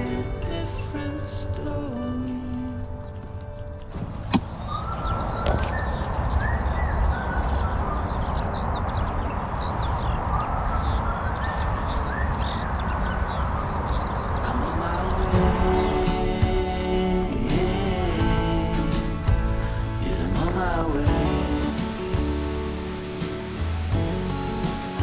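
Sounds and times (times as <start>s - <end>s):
birds chirping: 0.0s - 25.0s
wind rumbling on microphone: 2.2s - 25.0s.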